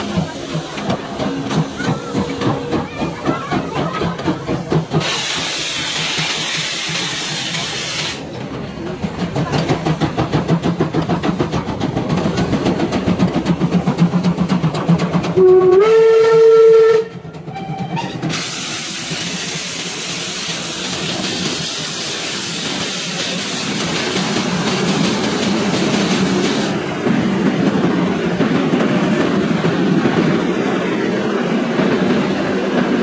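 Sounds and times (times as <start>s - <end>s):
rush of steam and rolling carriages: 0.0s - 33.0s
steam locomotive exhaust chuffs: 0.0s - 33.0s
steam whistle blast: 15.4s - 18.2s.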